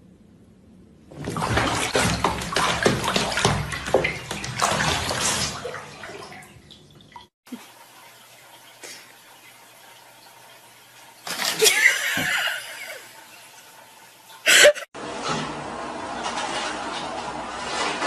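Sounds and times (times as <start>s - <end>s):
water splashing in bathtub: 1.1s - 15.0s.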